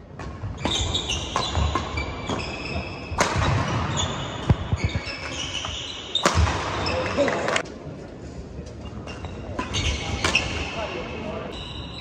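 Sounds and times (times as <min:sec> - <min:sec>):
rackets hitting shuttlecock: 0:00.1 - 0:07.2
shoes squeaking on court: 0:00.5 - 0:07.6, 0:08.8 - 0:10.9.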